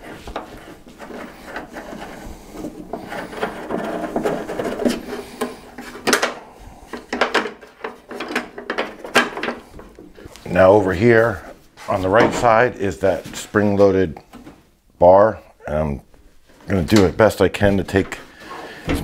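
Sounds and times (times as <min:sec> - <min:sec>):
metal parts scraping: 0:00.0 - 0:06.3.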